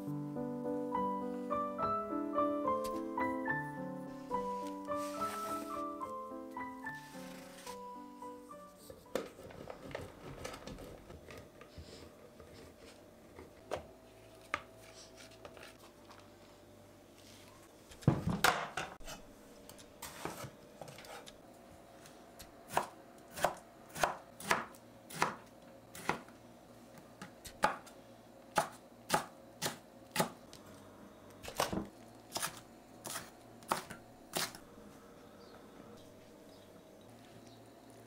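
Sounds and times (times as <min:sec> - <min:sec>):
knife chopping on wooden board: 0:22.7 - 0:25.4, 0:31.6 - 0:34.6.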